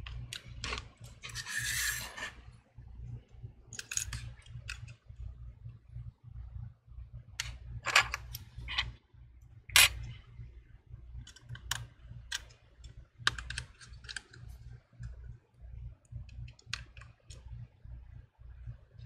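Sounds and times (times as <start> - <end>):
small metal and plastic parts clicking: 3.7 - 5.0, 11.2 - 15.2.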